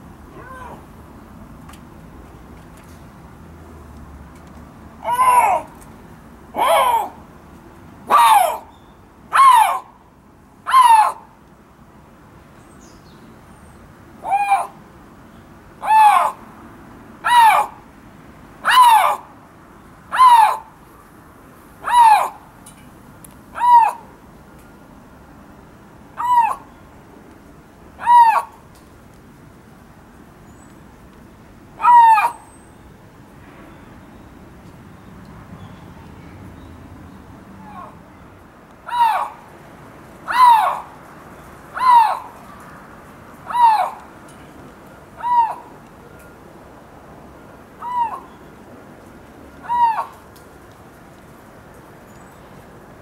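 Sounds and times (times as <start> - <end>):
lynx crying: 0.3 - 0.9, 5.0 - 5.7, 6.6 - 7.2.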